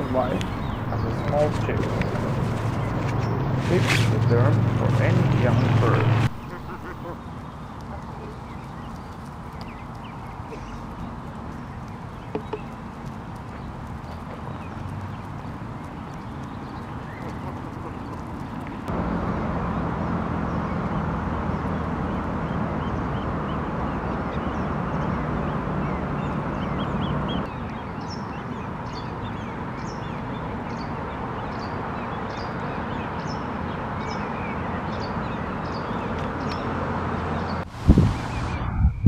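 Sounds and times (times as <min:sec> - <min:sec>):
goslings peeping: 0:00.0 - 0:14.5
microphone wind rushing: 0:37.6 - 0:39.0.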